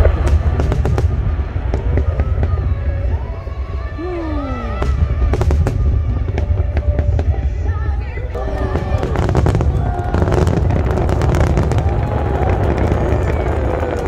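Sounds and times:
fireworks bangs and cracks: 0.0s - 3.9s, 4.8s - 14.0s
deep rumble: 0.0s - 14.0s.

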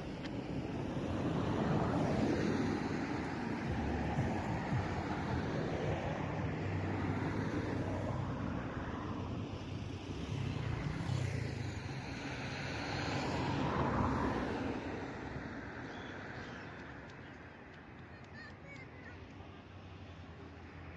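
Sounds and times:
vehicle engine and road noise: 0.0s - 20.9s.

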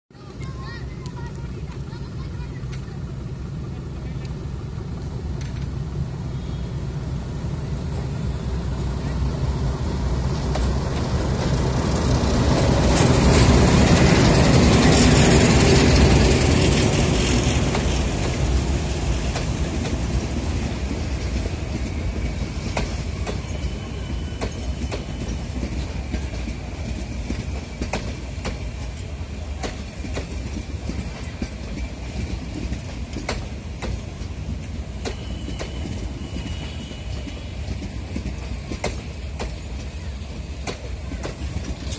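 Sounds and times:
diesel locomotive passing: 0.2s - 41.9s
train wheels clicking over rail joints: 5.2s - 6.0s, 10.1s - 41.9s
faint wheel squeals: 23.3s - 25.6s, 35.0s - 37.7s.

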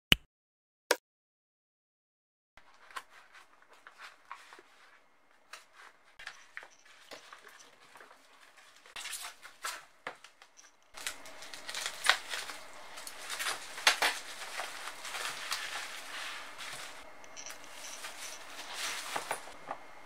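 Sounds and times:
padded envelope rustling: 2.6s - 10.4s, 11.0s - 19.8s
bubble wrap crinkling: 10.9s - 19.6s.

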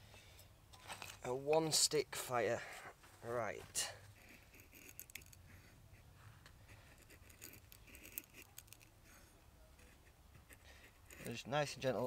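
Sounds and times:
knife shaving dry wood: 6.7s - 9.2s, 9.8s - 12.0s.

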